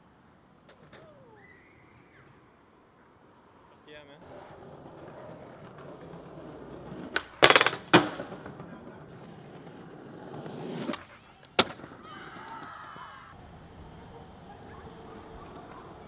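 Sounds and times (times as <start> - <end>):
skateboard wheels rolling on concrete: 0.0 - 16.0
skateboard clattering landing: 4.7 - 12.6
skateboard pop: 4.8 - 13.0.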